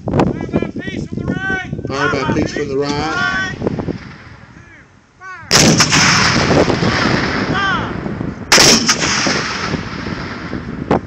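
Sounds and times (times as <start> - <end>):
cannon blasts with echoing rumble: 3.5 - 4.6, 5.5 - 11.0.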